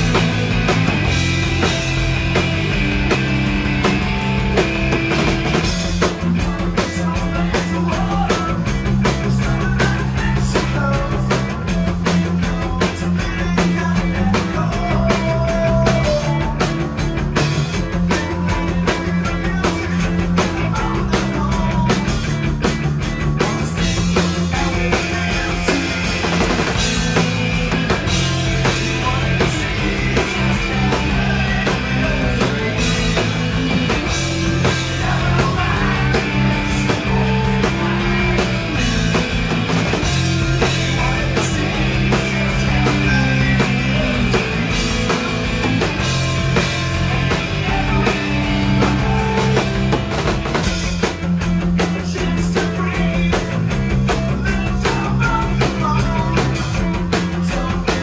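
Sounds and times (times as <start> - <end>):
bass: 0.0 - 58.0
distorted electric guitars: 0.0 - 58.0
drum kit: 0.0 - 58.0.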